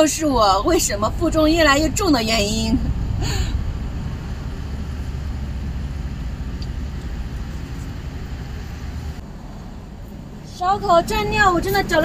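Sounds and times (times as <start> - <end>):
wind rumble and hiss: 0.0 - 12.0.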